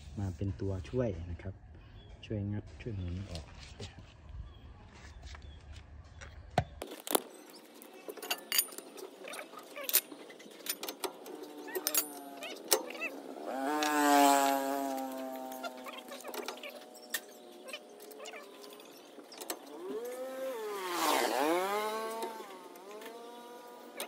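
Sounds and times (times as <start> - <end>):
metal clinks and knocks: 6.9 - 13.0.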